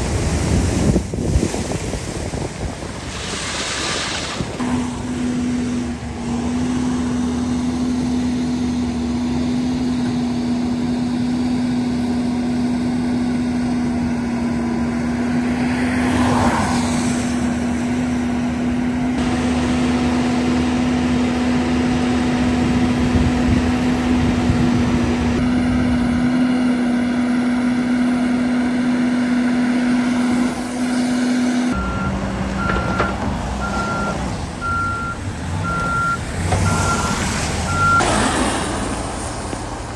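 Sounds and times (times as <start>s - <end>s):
backhoe loader drone: 3.1s - 39.9s
reversing alarm beeping: 31.7s - 38.3s.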